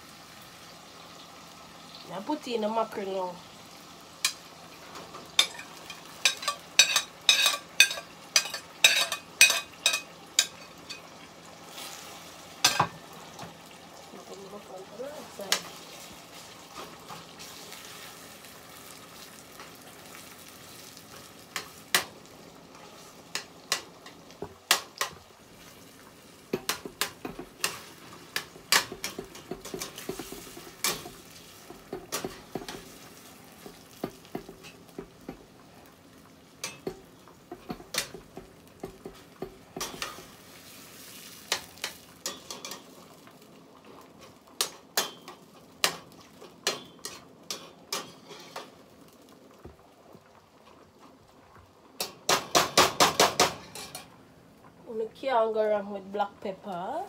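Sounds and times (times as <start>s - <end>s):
fish frying in oil: 0.0s - 57.0s
metal spoon clinking on pot: 5.4s - 11.0s.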